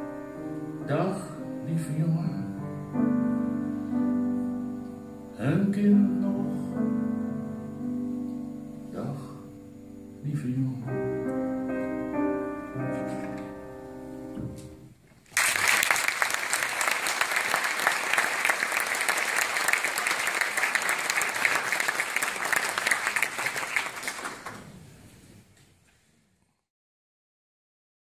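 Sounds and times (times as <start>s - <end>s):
grand piano chords: 0.0s - 15.0s
audience applause: 15.3s - 24.9s.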